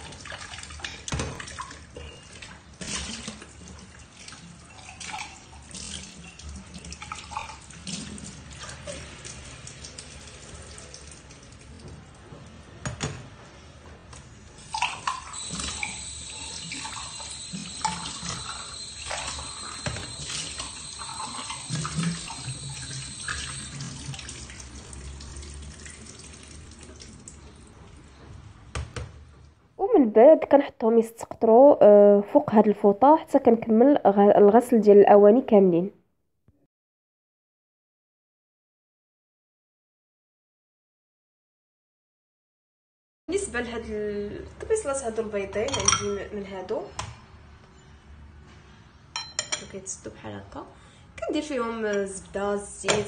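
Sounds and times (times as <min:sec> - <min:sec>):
water splashing in sink: 0:00.0 - 0:12.1, 0:14.6 - 0:28.0
steady high whistle: 0:15.4 - 0:23.9.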